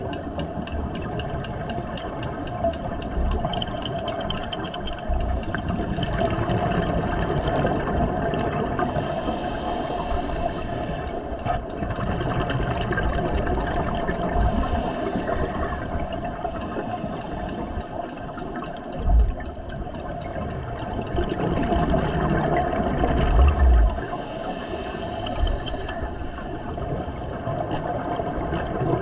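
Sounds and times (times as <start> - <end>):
faint clicks: 0.0 - 28.9
scuba breathing through regulator: 8.8 - 11.4, 14.4 - 18.5, 23.9 - 27.3
gurgling exhaled bubbles: 20.9 - 24.1.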